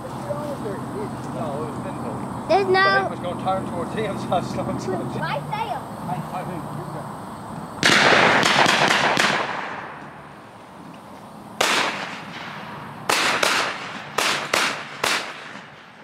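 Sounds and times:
shotgun shots: 7.8 - 10.4, 11.6 - 16.0.

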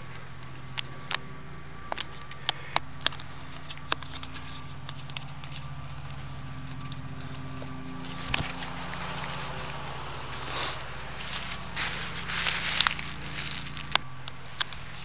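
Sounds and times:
leaves rustling: 7.1 - 15.0.

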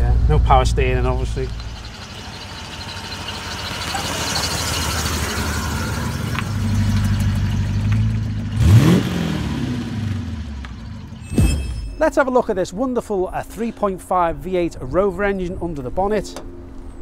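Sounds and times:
car engine revving: 0.0 - 11.3.

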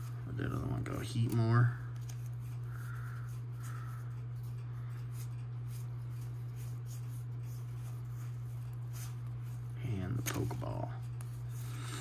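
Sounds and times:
trading cards rustling: 0.0 - 4.0
cards ticking against cards: 0.0 - 12.0
steady low hum: 0.0 - 12.0.

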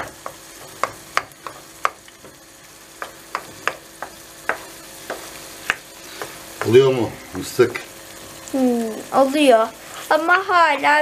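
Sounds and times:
wooden spoon knocking a pan: 0.0 - 7.0
eggs sizzling: 0.0 - 11.0.

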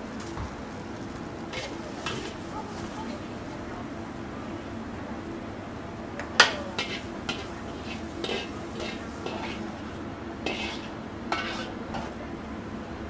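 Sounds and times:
metal ladle clanking against wok: 6.4 - 9.6, 10.4 - 12.2.

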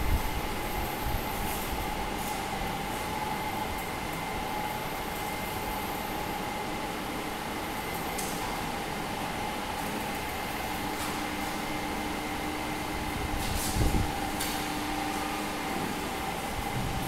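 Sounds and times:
machinery humming: 0.0 - 17.0.

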